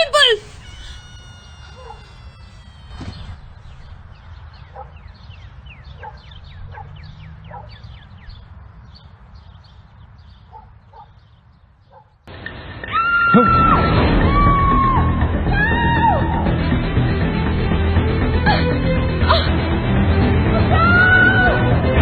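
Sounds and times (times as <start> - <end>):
high falling chirping calls: 0.0 - 12.2
faint paired squeaks: 0.4 - 4.0.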